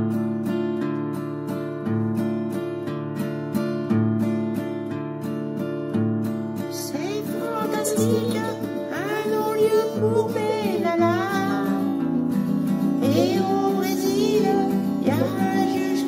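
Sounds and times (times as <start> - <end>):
acoustic guitar: 0.0 - 16.0
person singing: 6.7 - 12.1, 13.0 - 16.0.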